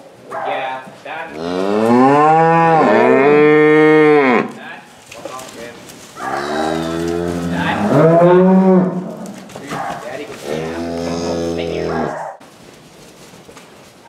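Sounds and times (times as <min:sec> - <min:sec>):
cattle mooing: 0:01.3 - 0:04.6, 0:06.2 - 0:12.3.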